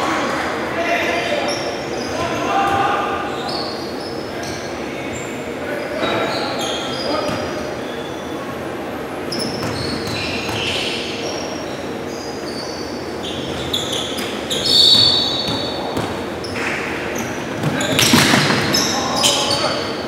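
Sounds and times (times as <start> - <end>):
sneakers squeaking: 0.2 - 20.0
basketball bouncing: 15.0 - 18.8.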